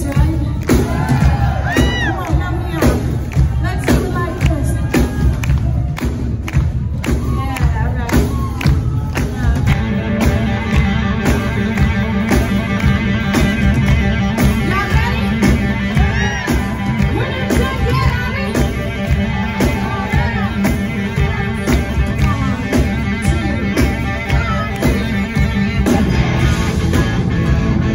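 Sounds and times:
blues-rock band playing: 0.0 - 27.9
woman singing: 14.6 - 26.3.

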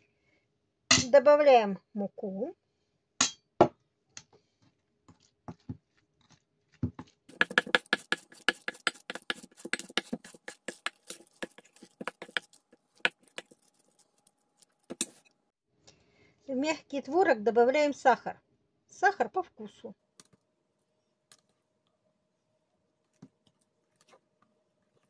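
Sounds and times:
metal spoon scraping a bowl: 7.3 - 15.3.

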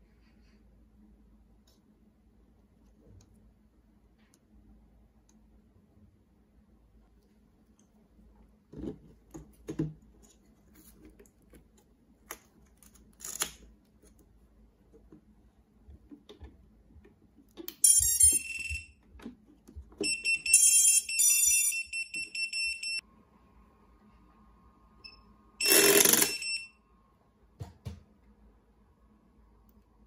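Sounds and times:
drone motor start-up beeps: 25.1 - 26.7.

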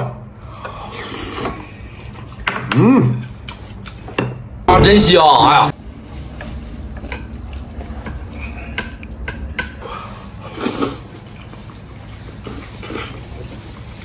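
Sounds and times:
slurp from bowl: 10.1 - 11.2.

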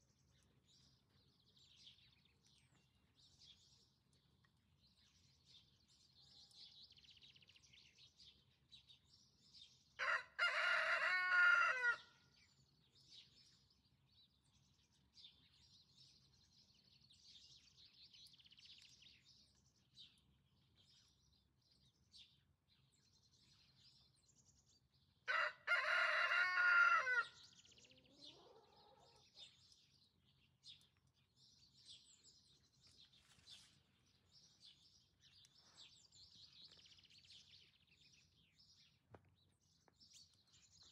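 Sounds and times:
songbirds chirping: 0.0 - 40.9
rooster crowing: 10.0 - 12.1, 25.3 - 27.4.

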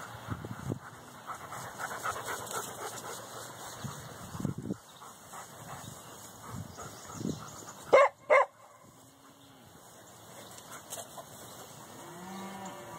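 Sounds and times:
dog barking: 7.9 - 8.7.

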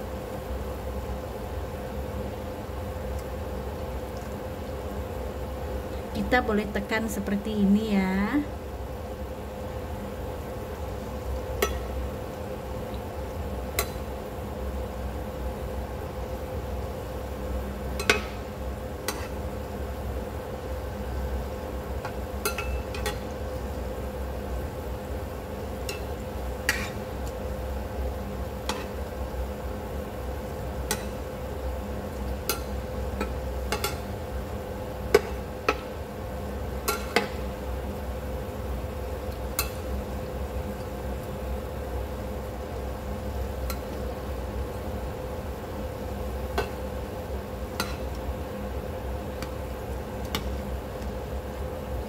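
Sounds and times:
faint steady hum: 0.0 - 52.0
food deep-frying in oil: 0.0 - 52.0
metal spatula clicking on pan: 18.0 - 18.4, 30.9 - 31.2, 36.9 - 37.4, 39.6 - 39.8, 47.8 - 48.2.

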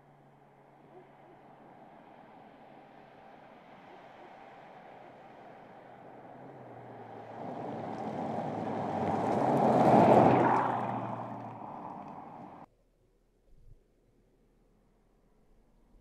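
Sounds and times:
car driving past: 1.6 - 12.7.

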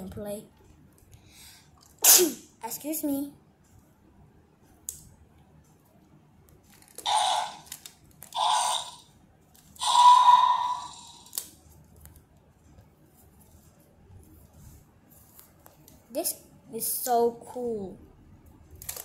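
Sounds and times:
toy dinosaur raspy roars: 7.0 - 9.1, 9.8 - 11.4.

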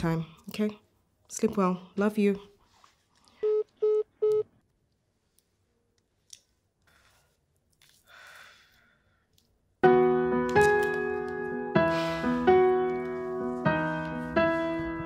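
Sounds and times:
phone call-ended beeps: 3.4 - 4.5.

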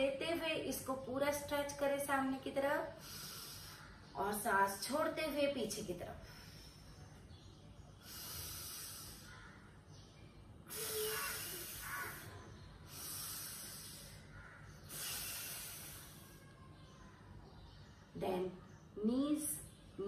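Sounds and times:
woman breathing slowly: 2.9 - 4.1, 6.2 - 16.6.

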